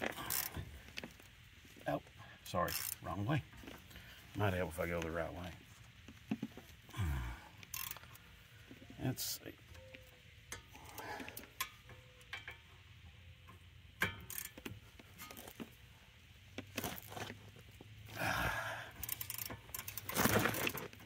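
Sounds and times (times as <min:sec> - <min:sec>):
metal tools clinking on caliper: 0:07.6 - 0:08.2
scraping rustle: 0:19.8 - 0:21.0.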